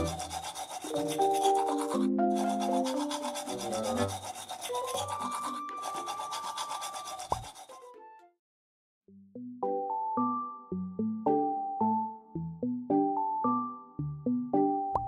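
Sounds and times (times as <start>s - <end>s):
toothbrush scrubbing teeth: 0.0s - 7.9s.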